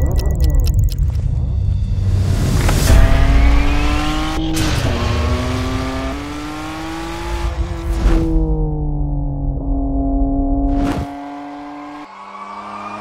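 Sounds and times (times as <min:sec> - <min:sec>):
car engine accelerating hard: 0:02.6 - 0:13.0.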